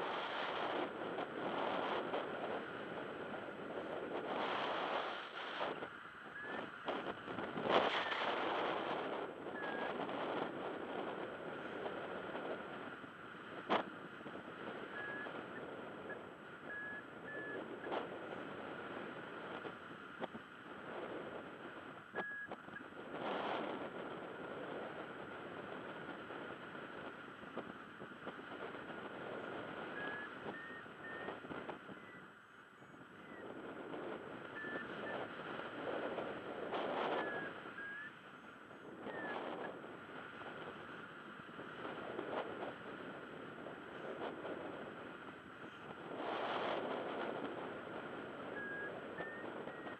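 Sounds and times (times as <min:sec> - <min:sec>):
wind over microphone: 0:00.0 - 0:49.9
high variometer beeps: 0:09.6 - 0:10.0, 0:14.9 - 0:17.6, 0:22.2 - 0:22.9, 0:30.0 - 0:31.4, 0:34.5 - 0:35.2, 0:48.6 - 0:49.9.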